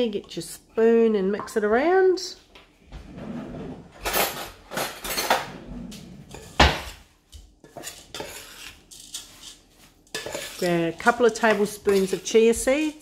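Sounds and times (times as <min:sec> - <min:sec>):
spoon scraping a metal bowl: 0:06.2 - 0:07.0, 0:07.6 - 0:13.0.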